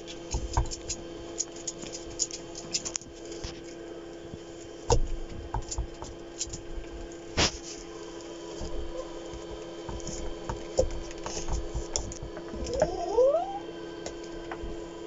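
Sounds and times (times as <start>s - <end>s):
steady low hum: 0.0s - 15.0s
knife scraping pumpkin rind: 7.3s - 7.9s.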